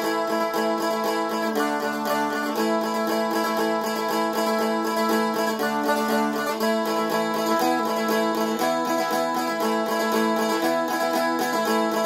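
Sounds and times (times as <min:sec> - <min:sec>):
strumstick strummed: 0:00.0 - 0:12.0.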